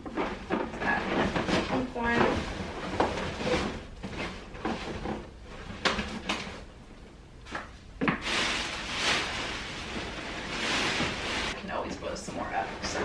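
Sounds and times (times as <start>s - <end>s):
balloons being handled: 0.0s - 6.8s, 7.4s - 13.0s
plastic bag rustling: 8.0s - 13.0s.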